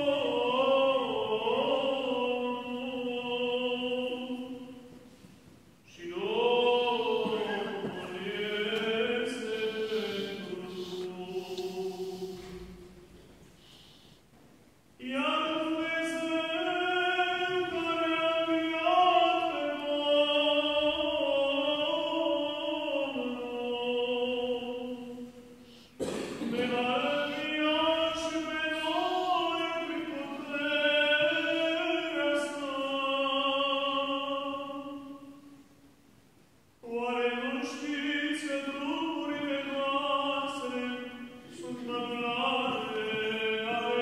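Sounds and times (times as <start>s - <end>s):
man chanting: 5.9s - 12.5s, 26.4s - 35.1s, 36.8s - 44.0s.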